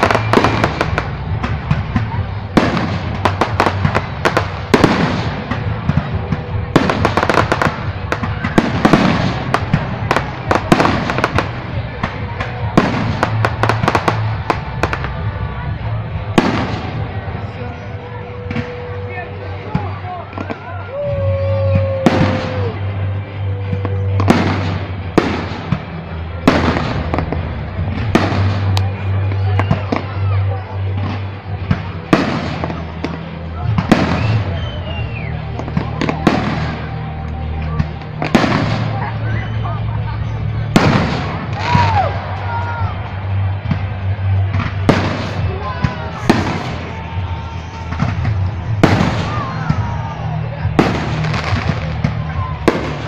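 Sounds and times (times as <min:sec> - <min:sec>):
fireworks bursting: 0:00.0 - 0:53.0
fireworks crackling: 0:00.0 - 0:53.0.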